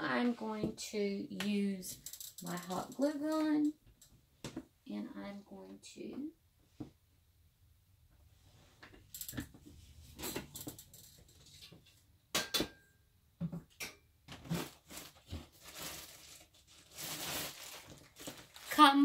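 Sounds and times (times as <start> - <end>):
hands rummaging craft supplies: 14.3 - 19.0.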